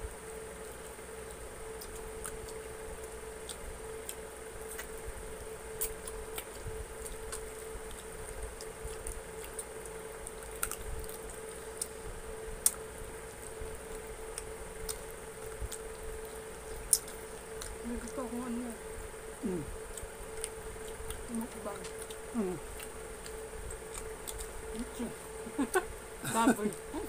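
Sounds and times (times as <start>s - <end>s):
faint steady hum: 0.0s - 27.0s
wet chewing and lip smacks: 1.8s - 5.1s, 5.7s - 12.0s, 12.6s - 18.2s, 19.8s - 25.4s.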